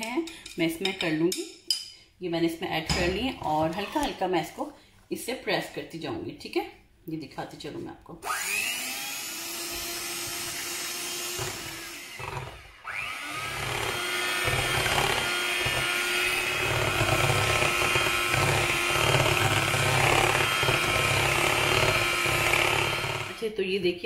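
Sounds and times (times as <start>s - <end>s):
electric hand mixer whining: 8.2s - 23.5s.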